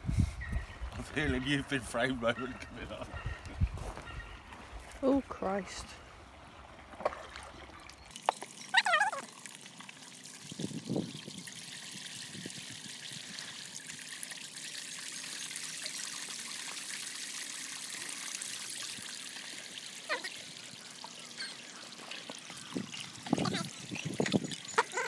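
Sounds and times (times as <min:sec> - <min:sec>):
fountain water splashing: 0:07.0 - 0:25.0.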